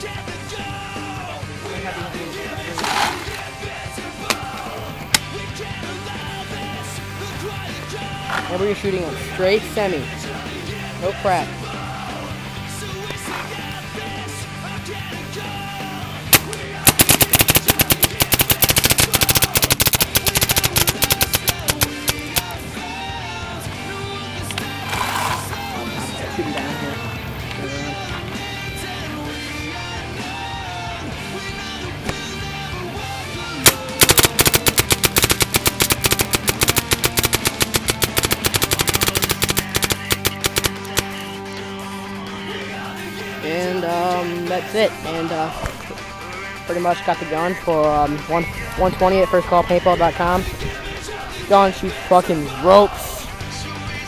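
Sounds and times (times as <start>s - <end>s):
rock music: 0.0s - 54.0s
paintball marker shots: 16.3s - 22.6s, 33.6s - 41.3s.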